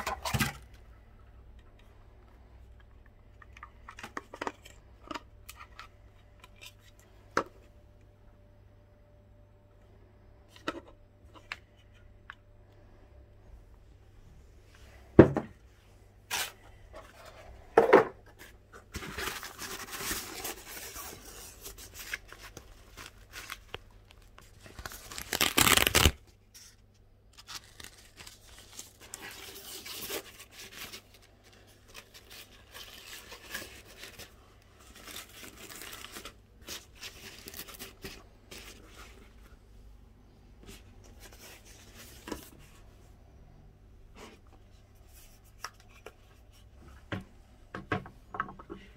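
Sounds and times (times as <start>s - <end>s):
packaging handling noises: 16.2s - 39.5s
packaging tearing: 19.2s - 26.3s, 27.4s - 31.1s.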